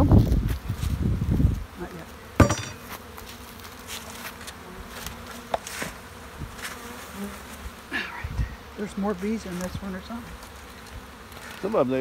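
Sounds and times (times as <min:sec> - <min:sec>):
bees buzzing: 0:00.0 - 0:12.0
sharp knock: 0:02.4 - 0:02.8.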